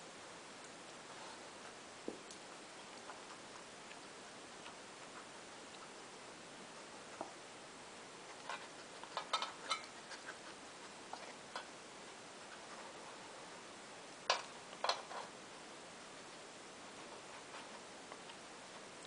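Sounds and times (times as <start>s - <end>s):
metal muffin tin clinking: 9.1s - 10.0s.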